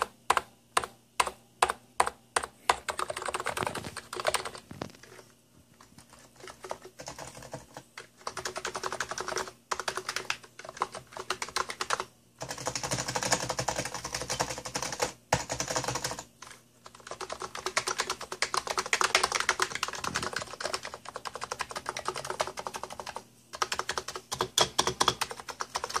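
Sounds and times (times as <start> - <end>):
fast keyboard typing: 0.0 - 26.0.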